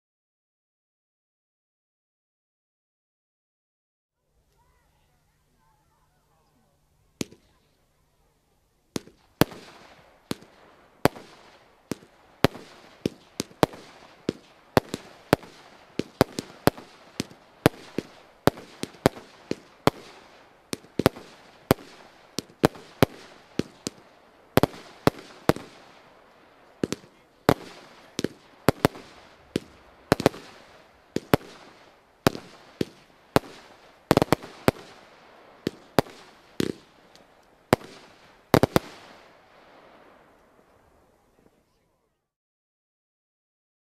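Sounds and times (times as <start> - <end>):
fireworks bangs: 7.2 - 8.3, 8.9 - 41.6.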